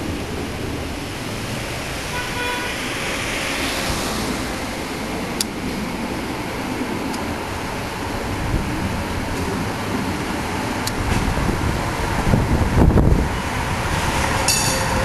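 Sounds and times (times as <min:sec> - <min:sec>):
street traffic noise: 0:00.0 - 0:15.0
tram approaching: 0:00.0 - 0:15.0
tram horn toot: 0:01.9 - 0:04.8, 0:13.2 - 0:15.0.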